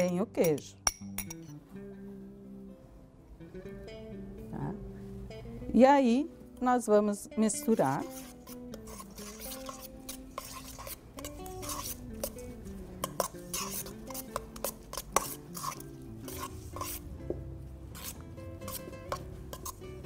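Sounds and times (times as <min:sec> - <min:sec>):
soft guitar music: 0:00.0 - 0:20.0
metal spoon scraping steel bowl: 0:07.6 - 0:17.1, 0:17.9 - 0:20.0.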